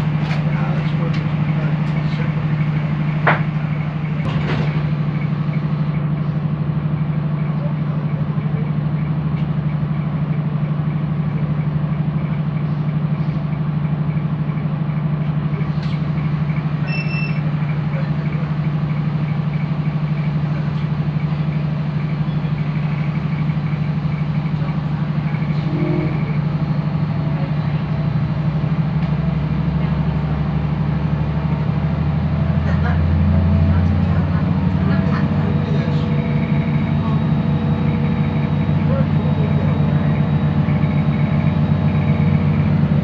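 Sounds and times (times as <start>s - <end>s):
train engine humming: 0.0s - 43.0s
short electronic beep: 16.8s - 17.4s.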